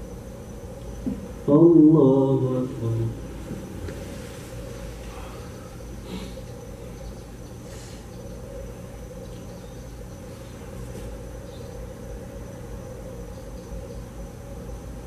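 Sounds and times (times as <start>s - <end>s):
low electrical hum: 0.0s - 15.0s
thin high whine: 0.0s - 15.0s
faint rustle: 3.3s - 6.4s.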